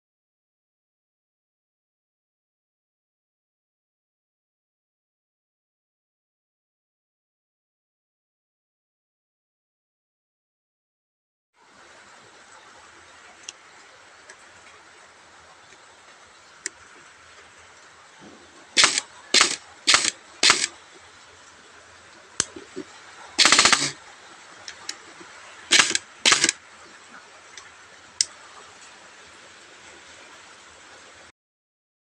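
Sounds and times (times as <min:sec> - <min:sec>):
faint clicks: 0:13.2 - 0:14.8, 0:15.6 - 0:21.6, 0:22.3 - 0:29.0
airsoft gun shots: 0:18.8 - 0:20.7, 0:23.4 - 0:24.0, 0:25.7 - 0:26.6.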